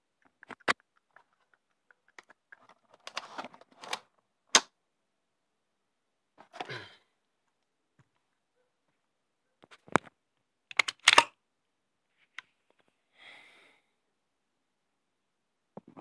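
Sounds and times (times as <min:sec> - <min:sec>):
metal rifle parts clicking: 0:10.7 - 0:11.3.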